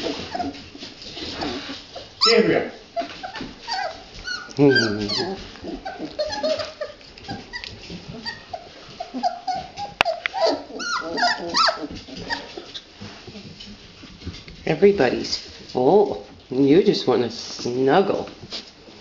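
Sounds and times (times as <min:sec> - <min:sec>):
puppies squeaking and whining: 0:00.0 - 0:14.4.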